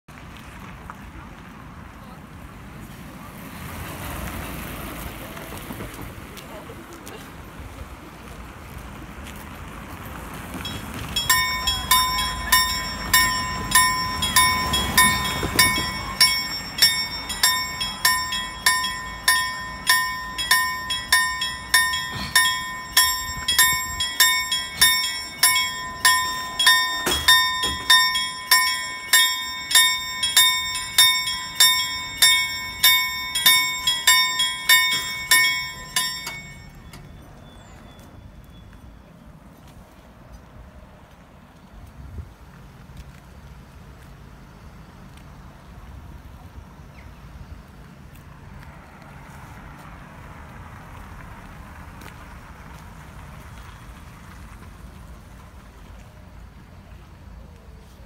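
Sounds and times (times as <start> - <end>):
level crossing warning bell: 10.1 - 39.2.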